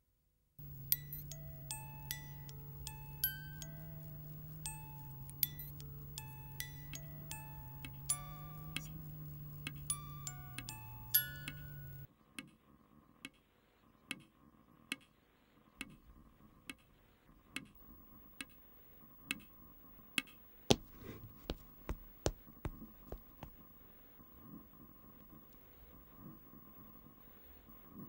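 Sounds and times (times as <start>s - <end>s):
faint steady hum: 0.6s - 12.1s, 17.8s - 28.0s
sharp ticks: 0.6s - 12.1s.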